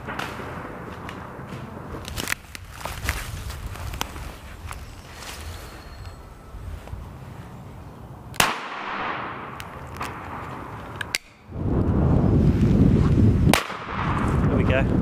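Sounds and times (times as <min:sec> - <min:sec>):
shotgun shots: 0:08.4 - 0:10.4.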